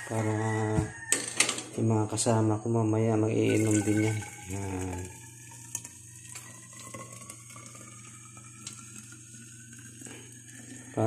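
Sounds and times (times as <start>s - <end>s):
water pouring into flask: 3.4s - 11.0s.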